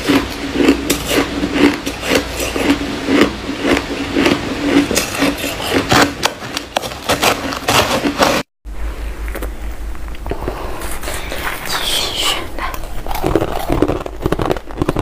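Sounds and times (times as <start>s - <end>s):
ice being chewed: 0.0s - 8.4s, 12.6s - 15.0s.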